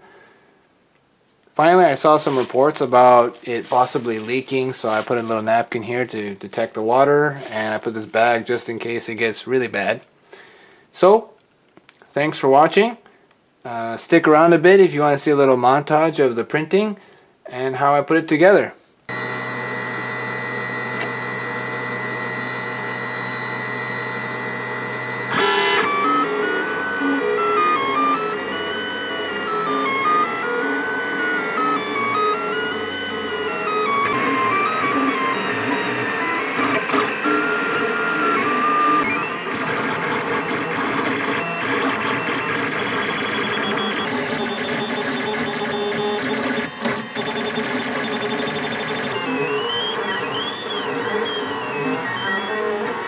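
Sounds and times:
cooling fans whirring: 19.1 - 53.0
stepper motors whining: 19.1 - 53.0.

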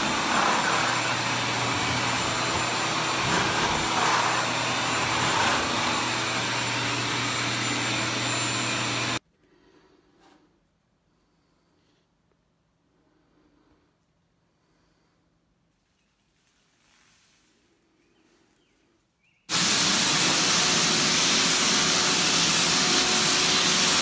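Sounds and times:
scraper blade scraping ceiling: 0.0 - 9.2
vacuum motor running: 0.0 - 9.2, 19.5 - 24.0.

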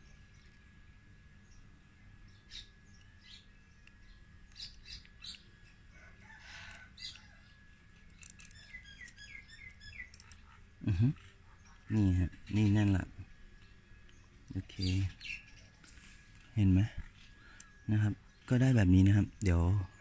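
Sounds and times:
faint bird chirps: 8.2 - 20.0.

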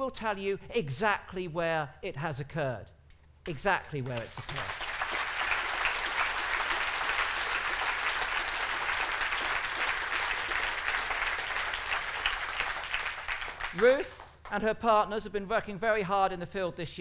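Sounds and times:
audience applauding: 4.0 - 14.5.

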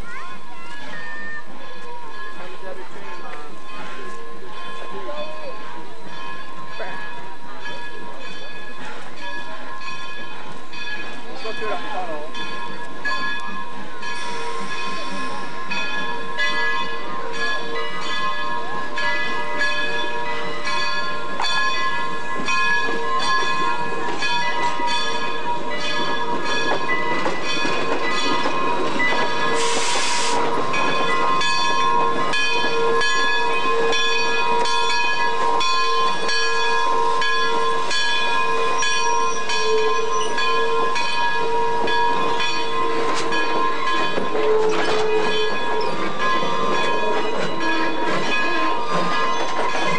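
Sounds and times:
steam locomotive bell ringing: 0.0 - 49.9
steam hissing: 14.2 - 15.7, 29.3 - 31.4.

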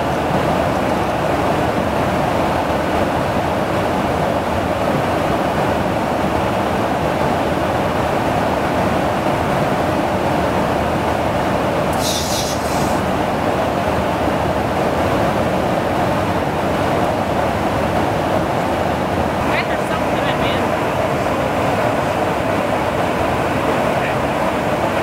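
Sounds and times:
aircraft rush and rumble: 0.0 - 25.0
brief high hiss: 11.9 - 13.0.

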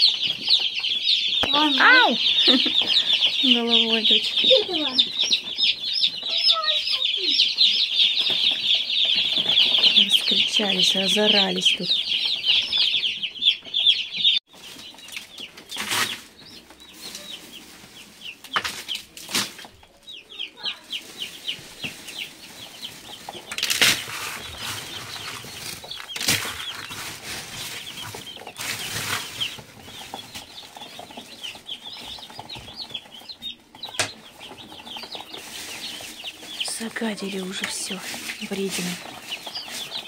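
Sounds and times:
chicks peeping: 0.0 - 40.0
rustling bursts: 20.8 - 40.0.

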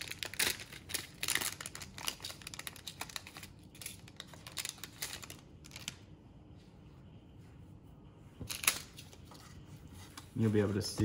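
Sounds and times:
foil pouch crinkling: 0.0 - 6.0.

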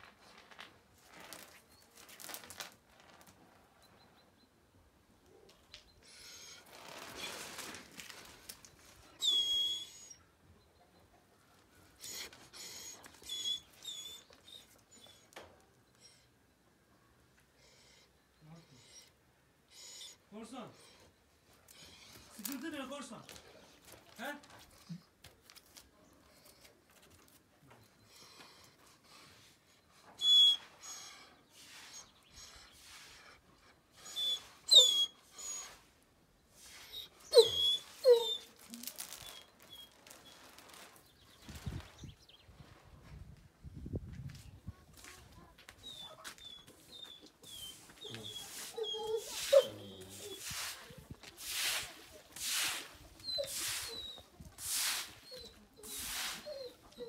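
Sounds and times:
dog whining: 9.0 - 10.3, 12.0 - 16.2, 30.2 - 33.4, 34.0 - 35.8, 36.7 - 40.4, 45.8 - 50.6, 53.2 - 54.3, 55.2 - 57.0
dog sniffing: 46.0 - 54.2.

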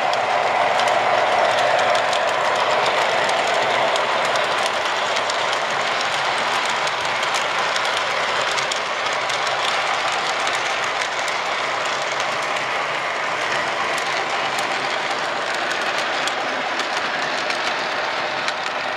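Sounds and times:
locomotive whine: 0.0 - 7.8
model train wheels rumbling: 0.0 - 18.9
wheels clicking over rail joints: 0.0 - 18.9.

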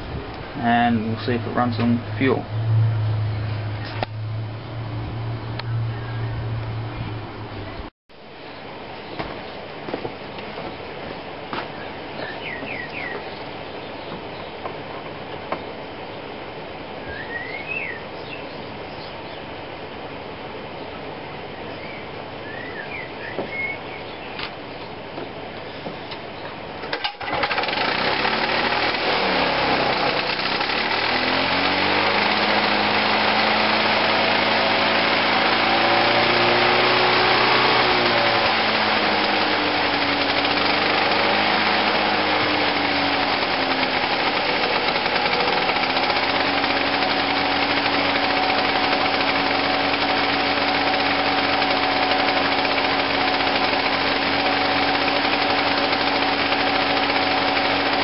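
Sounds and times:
lawn mower engine running: 26.8 - 58.0.

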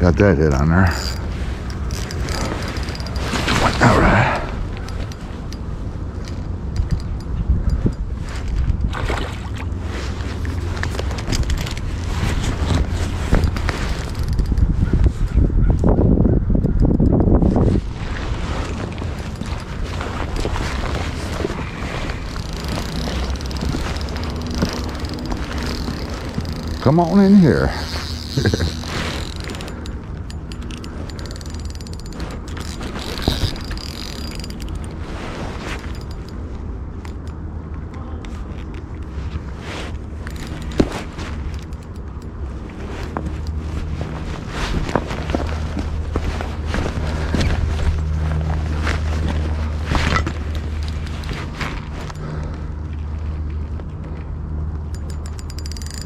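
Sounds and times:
steady low hum: 0.0 - 56.0
fishing reel gears ticking: 0.9 - 3.6, 13.4 - 14.7, 16.6 - 17.5, 22.2 - 35.0, 35.8 - 36.4, 37.0 - 37.4, 40.2 - 40.9, 54.9 - 56.0.

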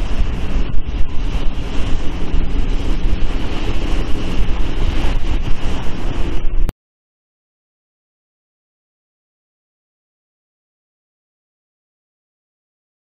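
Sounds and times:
choppy water rushing: 0.0 - 6.7
wind buffeting microphone: 0.0 - 6.7.

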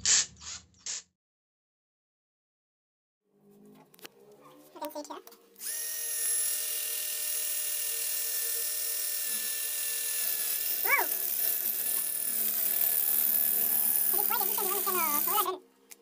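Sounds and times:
drill whining into masonry: 5.6 - 15.5.

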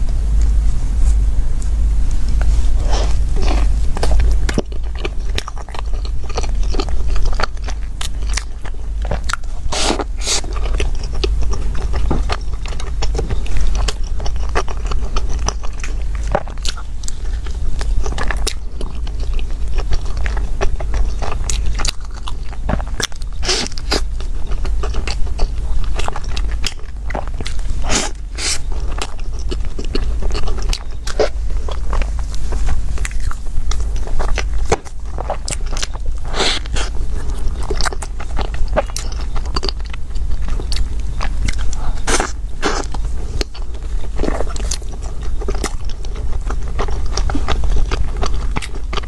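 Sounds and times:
steady low hum: 0.0 - 49.0
person chewing bread: 1.6 - 49.0
wet mouth noises: 18.1 - 48.8.

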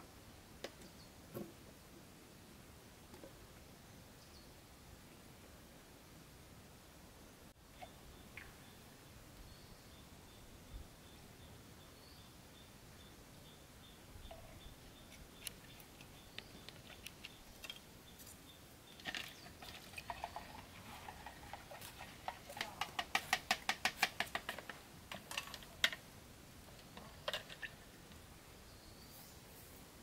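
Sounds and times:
stick stirring in plastic bucket: 19.0 - 26.0.

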